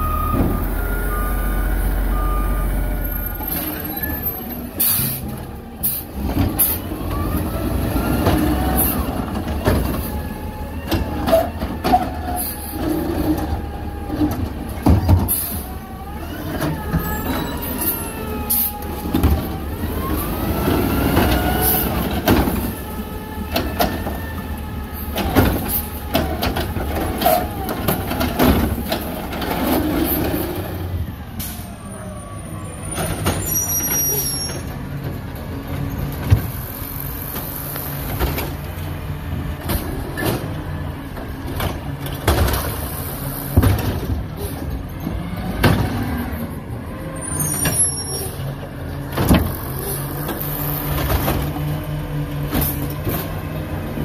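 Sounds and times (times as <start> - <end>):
diesel engine running: 0.0 - 32.0
garbage truck pulling up: 0.0 - 54.0.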